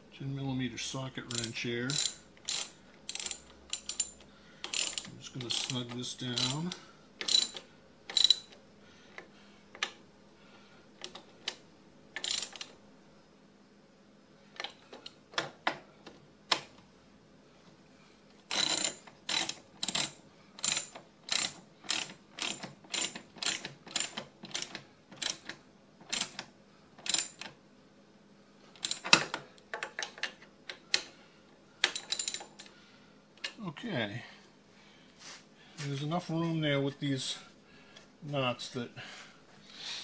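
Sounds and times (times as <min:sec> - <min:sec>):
ratchet wrench clicking: 0:01.3 - 0:08.5, 0:12.2 - 0:12.7, 0:18.5 - 0:25.4.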